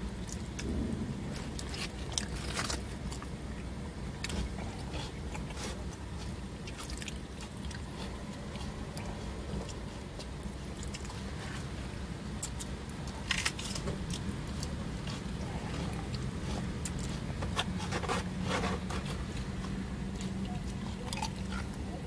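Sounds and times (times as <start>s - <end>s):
close-up chewing: 0.0s - 22.0s
steady low hum: 0.0s - 22.0s
plastic fork scraping styrofoam box: 16.4s - 19.4s.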